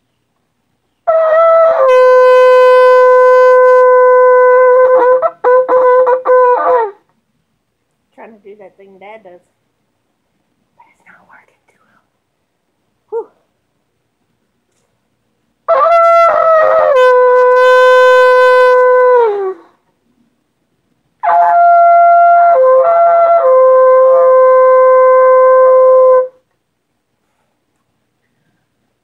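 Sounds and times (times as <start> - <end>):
shofar blasts: 1.1 - 7.0, 15.7 - 19.5, 21.2 - 26.4.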